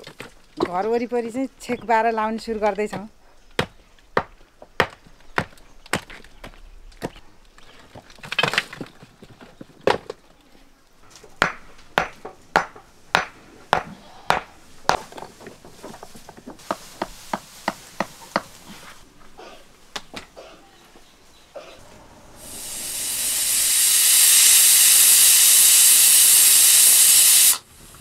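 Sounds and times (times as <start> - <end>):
hand tool striking stone: 11.3 - 15.3, 16.6 - 18.6.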